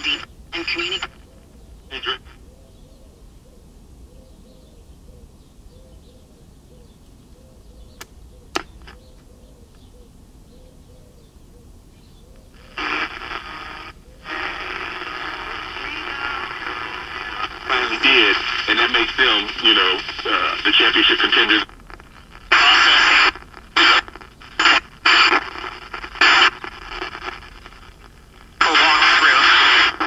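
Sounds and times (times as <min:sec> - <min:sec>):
radio static and station noise: 0:00.0 - 0:02.4, 0:12.5 - 0:30.0.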